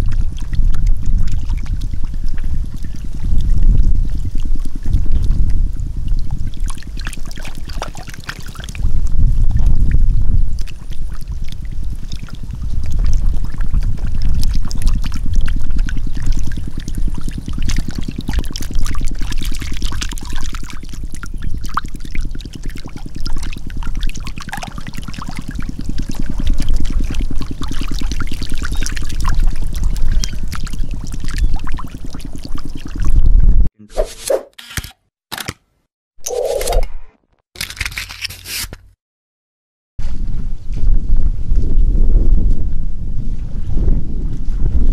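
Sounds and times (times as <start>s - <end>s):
low pulsing rumble: 0.0s - 7.3s, 8.8s - 33.9s
water splashing and pouring: 0.0s - 33.3s.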